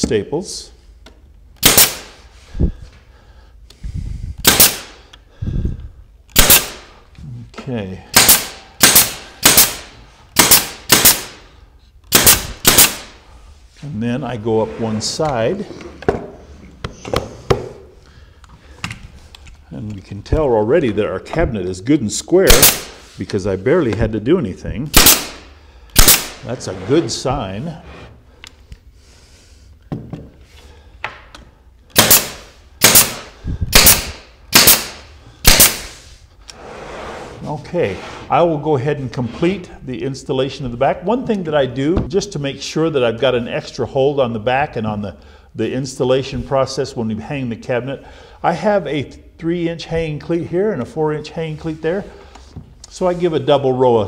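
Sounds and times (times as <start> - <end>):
pneumatic stapler firing: 1.6 - 2.1, 4.4 - 5.0, 6.3 - 6.8, 8.2 - 11.4, 12.1 - 13.1, 22.5 - 23.0, 25.0 - 25.4, 26.0 - 26.4, 31.9 - 36.0.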